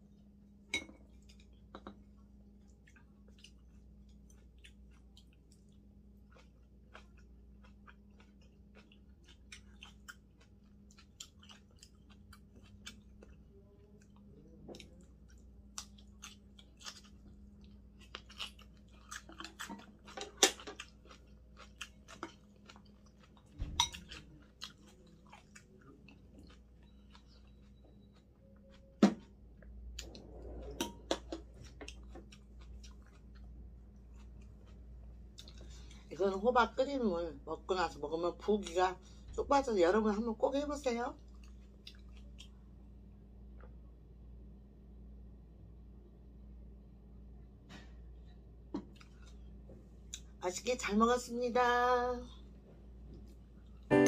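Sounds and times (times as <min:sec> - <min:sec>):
person chewing food: 0:01.0 - 0:36.1, 0:41.2 - 0:43.8, 0:48.7 - 0:50.4.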